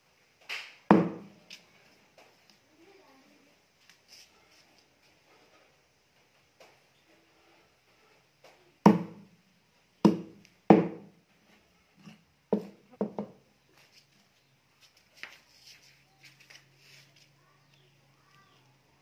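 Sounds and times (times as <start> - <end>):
cleaver chopping on wooden block: 8.9 - 9.2, 10.0 - 11.0.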